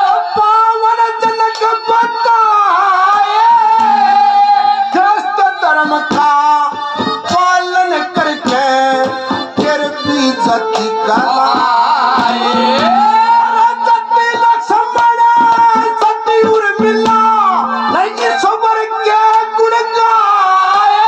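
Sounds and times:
instrumental accompaniment: 0.0s - 21.0s
man singing through microphone: 0.0s - 21.0s.

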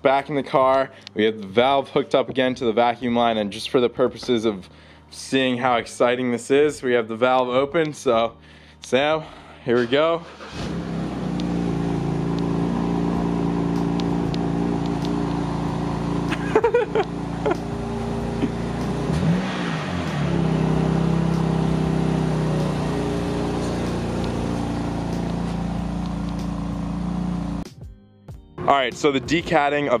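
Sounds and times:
car engine idling: 9.2s - 27.7s
engine revving: 9.7s - 27.7s.

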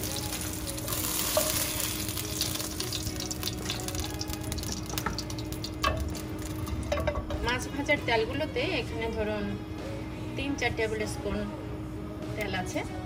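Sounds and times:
oil sizzling in a frying pan: 0.0s - 7.4s.

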